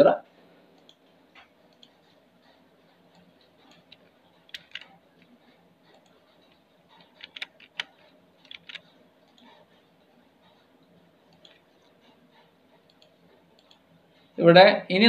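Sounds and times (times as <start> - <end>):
mouse and keyboard clicks: 0.8 - 2.2, 3.1 - 9.6, 12.8 - 13.8.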